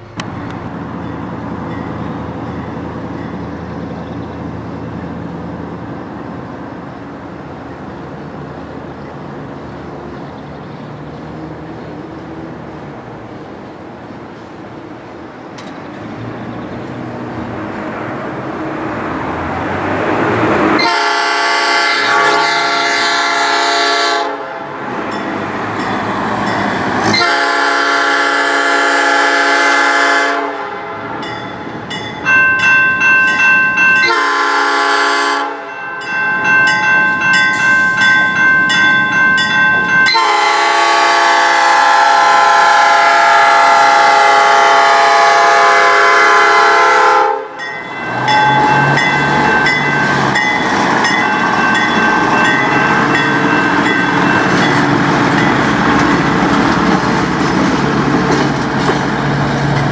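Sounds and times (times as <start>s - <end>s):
crossing warning bell ringing: 0.0s - 5.3s, 25.0s - 28.8s, 31.0s - 42.0s, 45.4s - 57.5s
rail car engine rumble: 0.0s - 59.9s
train horn blasts: 20.7s - 24.8s, 27.0s - 31.3s, 34.0s - 35.8s, 40.1s - 49.9s.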